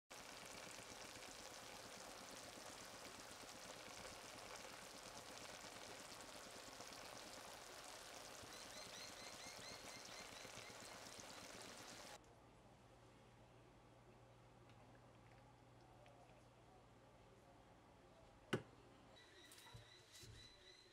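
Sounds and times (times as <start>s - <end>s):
food sizzling in a pan: 0.1s - 12.2s.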